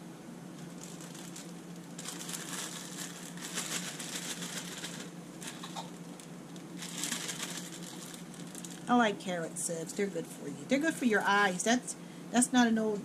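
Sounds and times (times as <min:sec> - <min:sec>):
plastic bag crinkling: 0:00.6 - 0:09.0.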